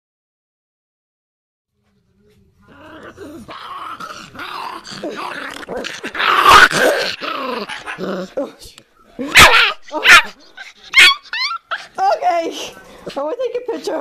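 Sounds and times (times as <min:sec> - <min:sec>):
puppy growling: 0:02.6 - 0:08.6, 0:09.2 - 0:12.0.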